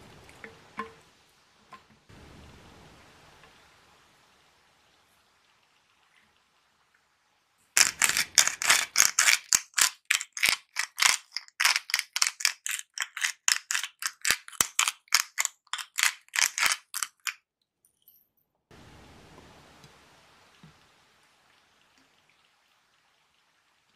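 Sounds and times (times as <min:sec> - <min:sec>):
salt grinder grinding: 0:07.8 - 0:17.4.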